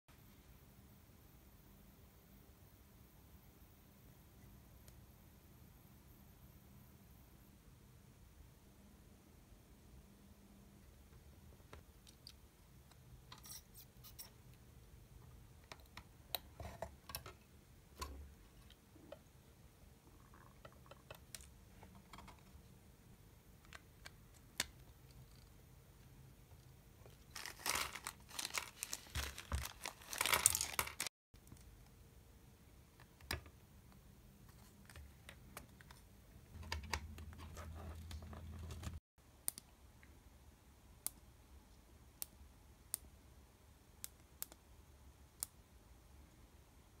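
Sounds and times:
key caps crinkling and clicking: 27.1 - 31.1.

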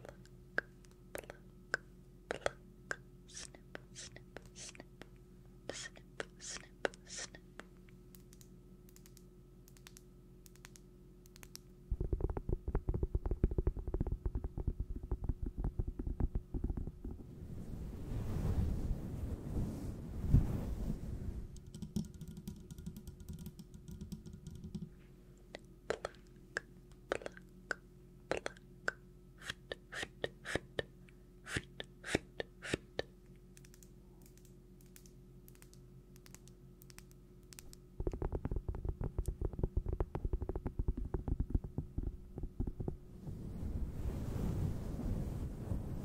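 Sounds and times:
faint steady hum: 0.0 - 46.0
sharp irregular clicks and taps: 8.1 - 16.9, 21.6 - 24.9, 33.5 - 43.0
rapid crackle of small taps: 11.4 - 17.2, 33.6 - 43.0.

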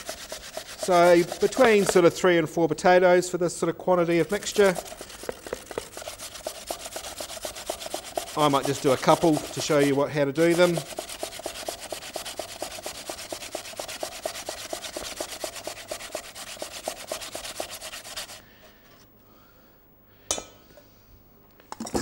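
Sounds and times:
potato grating on metal grater: 0.0 - 2.4, 3.9 - 18.4.

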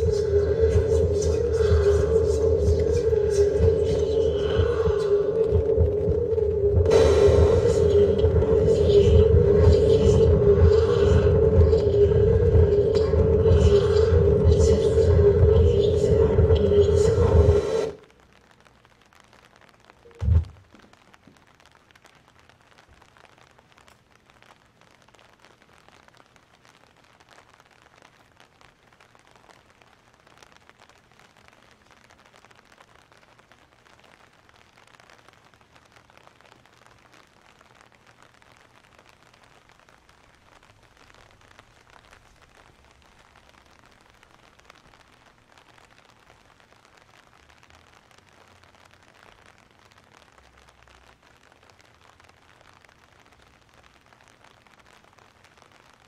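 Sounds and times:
low hum: 0.0 - 18.0
faint steady hiss: 0.0 - 56.0
light crackling: 0.0 - 56.0.

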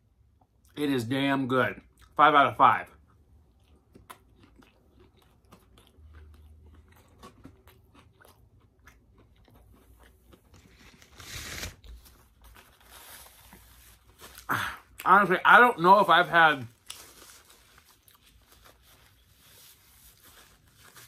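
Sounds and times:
person chewing food: 3.0 - 12.8, 16.8 - 21.0.

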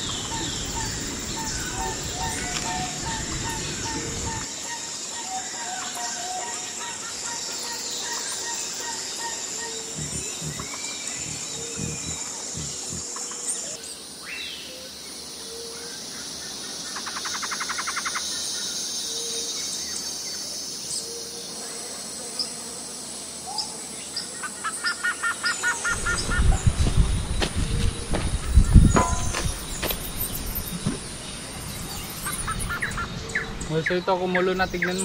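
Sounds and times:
birds chirping and calling: 0.0 - 13.8, 24.3 - 35.0
high insect drone: 0.0 - 35.0.

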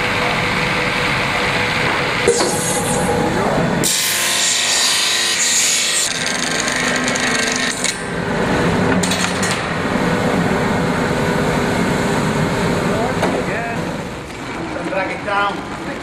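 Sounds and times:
machinery humming: 0.0 - 14.3
circular saw cutting: 0.7 - 8.1
brief high rasps: 2.2 - 4.5.

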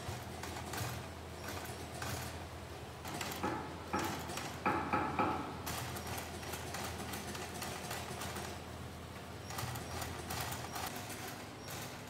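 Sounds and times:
sewing machine stitching: 0.0 - 2.4, 9.4 - 12.0.

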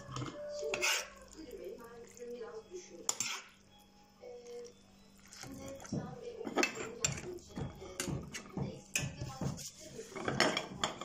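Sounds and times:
metal ladle clinking against glass jar: 0.1 - 1.4, 3.0 - 3.5, 6.4 - 9.1.

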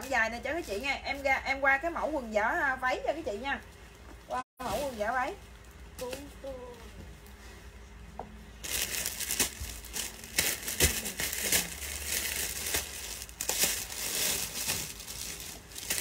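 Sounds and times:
plastic bag crinkling: 8.6 - 16.0.

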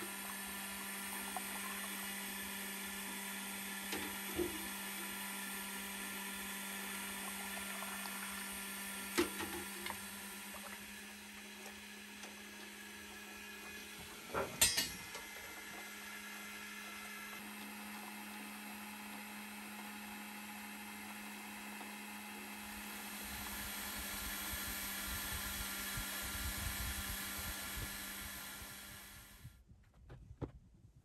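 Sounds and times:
separator motor humming: 0.0 - 29.5
milk pouring through strainer: 6.5 - 11.8.

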